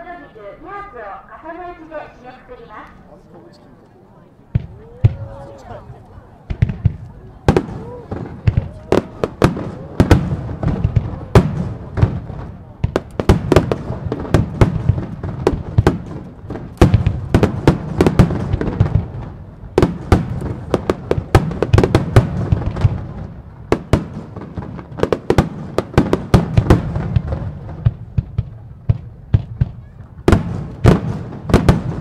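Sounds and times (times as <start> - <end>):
fireworks bursting with bangs: 4.5 - 32.0.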